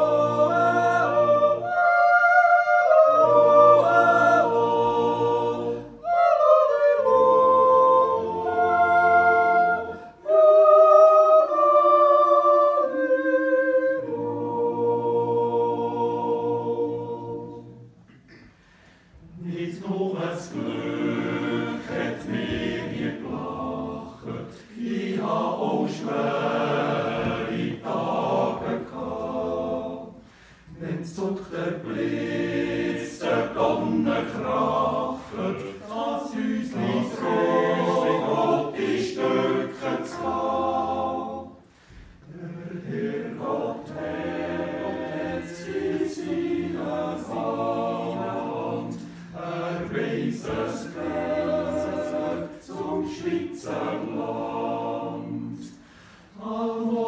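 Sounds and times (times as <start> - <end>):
men's choir yodeling a cappella: 0.0 - 17.8, 19.4 - 57.0.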